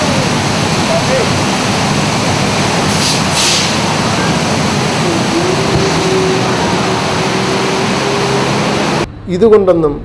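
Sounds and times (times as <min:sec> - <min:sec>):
rushing water: 0:00.0 - 0:09.1
steady hum: 0:00.0 - 0:09.2
short hissing bursts: 0:02.9 - 0:04.0.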